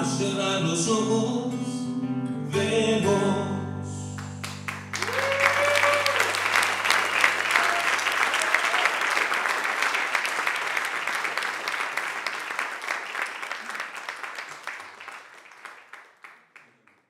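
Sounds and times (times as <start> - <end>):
audience applauding: 4.2 - 17.0.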